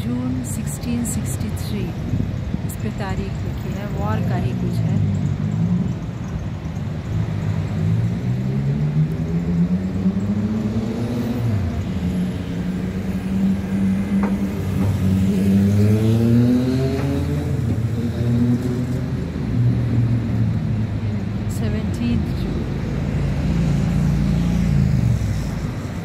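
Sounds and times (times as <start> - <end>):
vehicle engines running: 0.0 - 26.0
engines accelerating: 7.0 - 26.0.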